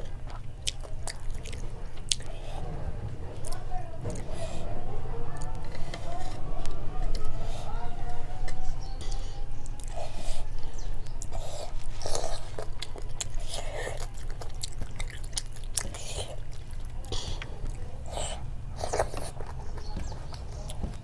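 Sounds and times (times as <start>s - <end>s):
person chewing food: 0.0s - 4.7s, 5.3s - 21.0s
steady low hum: 0.0s - 21.0s.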